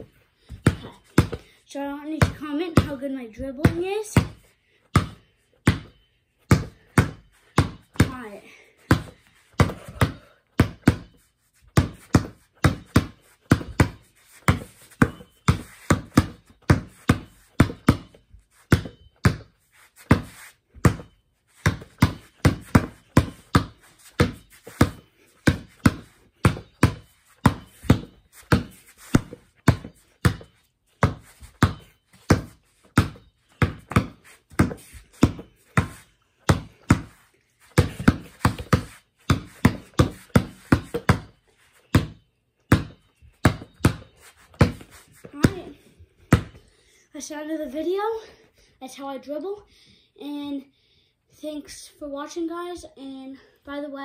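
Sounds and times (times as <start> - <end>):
basketball dribbled on hard floor: 0.5 - 1.5, 2.2 - 3.0, 3.6 - 5.9, 6.5 - 11.2, 11.8 - 19.5, 20.1 - 41.4, 42.0 - 46.6.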